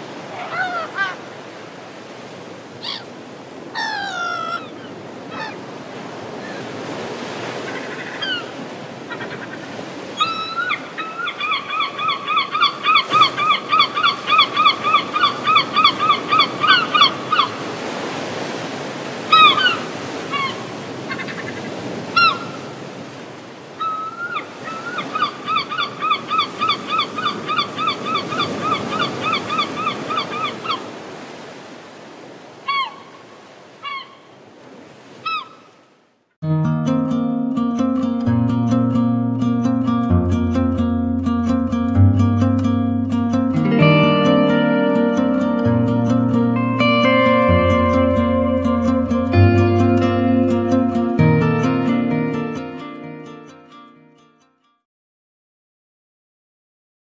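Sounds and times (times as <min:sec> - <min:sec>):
gulls calling: 0:00.0 - 0:01.8, 0:02.7 - 0:31.7, 0:32.6 - 0:34.4, 0:35.1 - 0:35.8, 0:42.5 - 0:53.8
water: 0:00.0 - 0:36.3
wind: 0:00.0 - 0:54.3.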